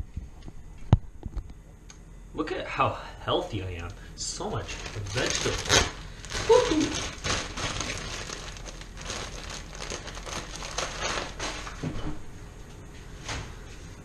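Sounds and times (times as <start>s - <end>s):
plastic bag crinkling: 4.5s - 11.9s.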